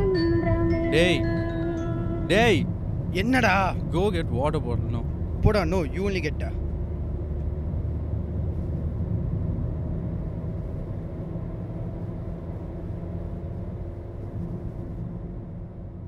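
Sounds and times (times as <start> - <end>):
road and engine rumble in car: 0.0 - 16.0.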